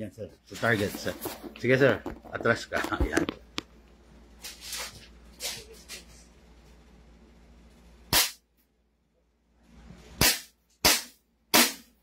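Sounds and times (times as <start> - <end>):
airsoft pistol shots: 8.1 - 8.4, 10.2 - 12.0.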